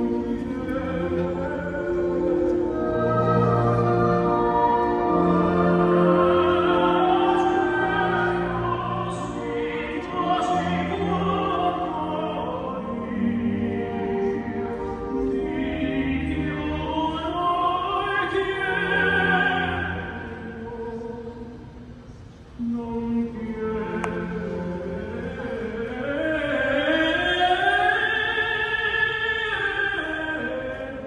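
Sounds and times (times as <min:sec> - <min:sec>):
orchestra playing: 0:00.0 - 0:20.8
operatic singing: 0:00.0 - 0:21.9, 0:22.6 - 0:31.0.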